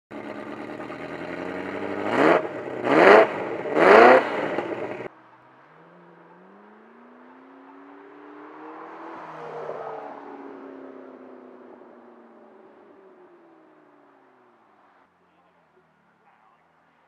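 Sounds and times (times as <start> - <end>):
car engine revving: 0.1 - 5.1
faint car engine accelerating: 0.1 - 17.0.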